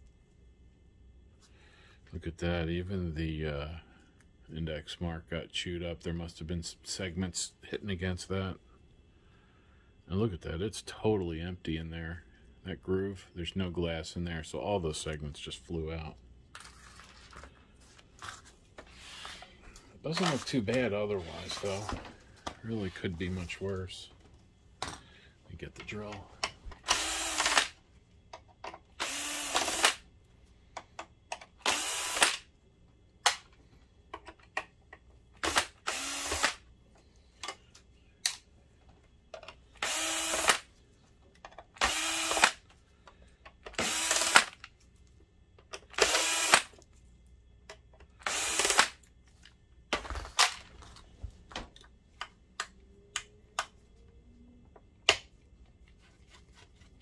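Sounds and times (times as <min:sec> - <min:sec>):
cordless drill bursts: 0:26.8 - 0:27.8, 0:29.0 - 0:30.0, 0:31.6 - 0:32.4, 0:35.4 - 0:36.6, 0:39.8 - 0:40.7, 0:41.8 - 0:42.6, 0:43.8 - 0:44.6, 0:46.0 - 0:46.7, 0:48.2 - 0:49.0.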